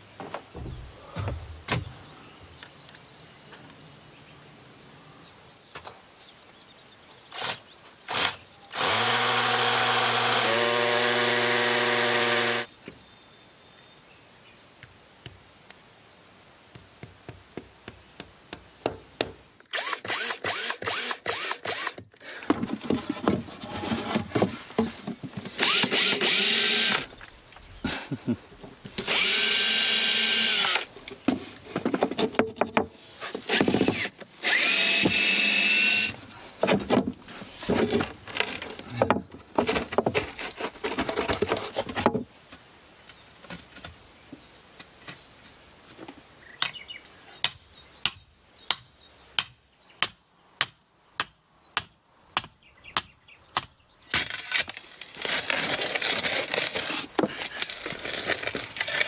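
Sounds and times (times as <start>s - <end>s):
spade scraping earth and stones: 0.5s - 2.5s, 22.2s - 27.9s, 36.3s - 42.1s, 54.1s - 59.0s
cordless drill removing screws: 7.4s - 12.7s, 19.7s - 22.4s, 25.4s - 27.1s, 28.9s - 30.9s, 33.3s - 36.2s.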